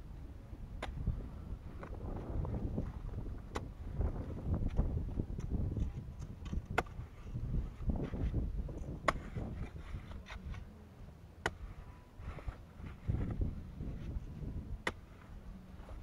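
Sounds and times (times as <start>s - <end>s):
hoe chopping into soil: 5.4s - 7.1s, 8.0s - 10.6s.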